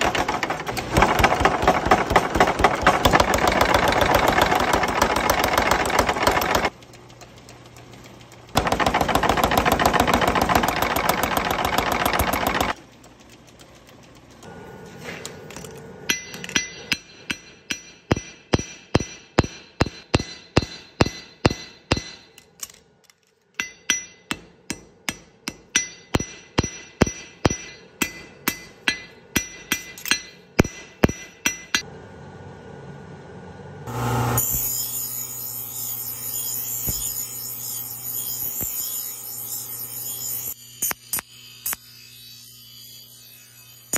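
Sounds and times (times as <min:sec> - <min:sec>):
hammer ringing on anvil: 0:16.1 - 0:22.4, 0:23.6 - 0:31.9
bench grinder grinding steel: 0:33.9 - 0:43.9.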